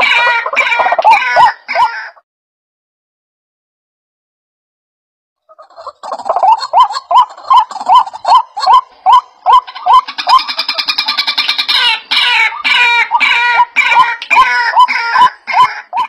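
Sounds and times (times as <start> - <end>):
bird calling loudly: 0.0 - 2.2, 5.4 - 16.0.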